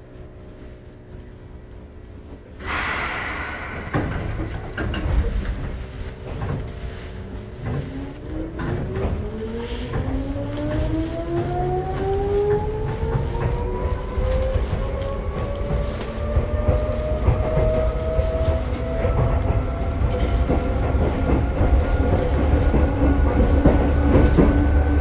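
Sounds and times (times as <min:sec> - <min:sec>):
train air hiss: 0:02.6 - 0:06.2.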